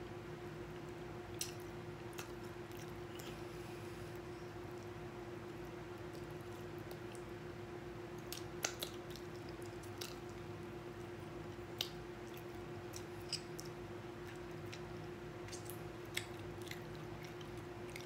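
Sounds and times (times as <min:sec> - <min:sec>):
steady low hum: 0:00.0 - 0:18.0
person chewing and lip smacking: 0:01.3 - 0:03.6, 0:05.6 - 0:07.3, 0:08.2 - 0:18.0.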